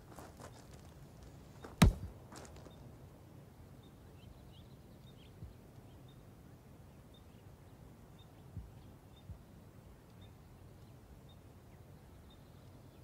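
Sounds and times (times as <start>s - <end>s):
ball hitting concrete wall: 1.8s - 2.1s.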